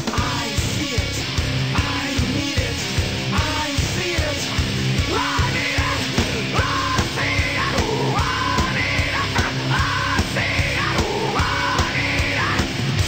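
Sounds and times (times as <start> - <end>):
loud steady drum beat: 0.0 - 13.0
shouted vocals: 3.4 - 13.0.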